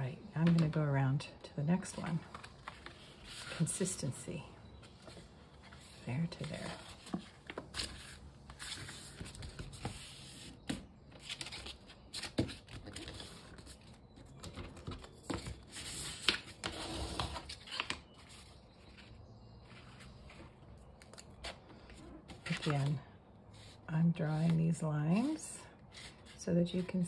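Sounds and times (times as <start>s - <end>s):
paper plate rustling and scraping: 21.3s - 27.0s.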